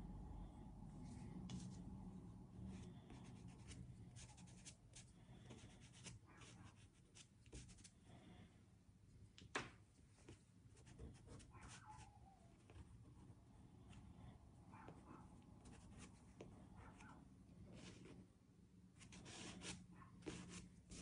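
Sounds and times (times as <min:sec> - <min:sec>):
pastel stick scratching on paper: 0:02.7 - 0:08.0, 0:10.2 - 0:12.9, 0:15.6 - 0:18.2, 0:19.0 - 0:21.0.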